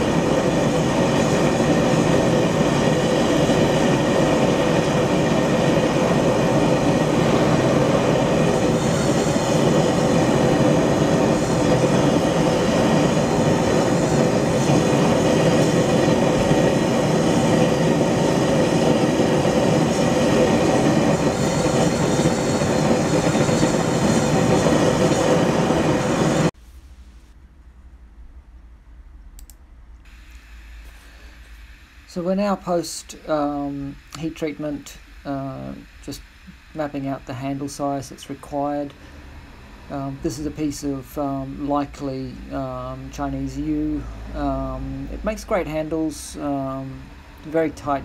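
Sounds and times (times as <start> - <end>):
hot steel sizzling in oil: 0.0 - 26.6.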